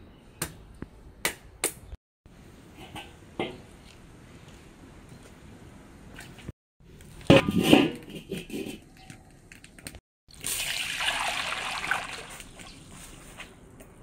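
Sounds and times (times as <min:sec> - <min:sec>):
water pouring into wok: 0:10.3 - 0:12.6.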